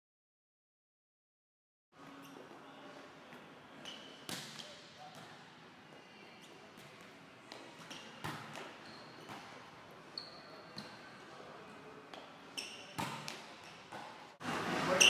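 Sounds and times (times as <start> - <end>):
sneaker squeaks: 2.1 - 2.8, 3.8 - 11.3, 12.1 - 14.2.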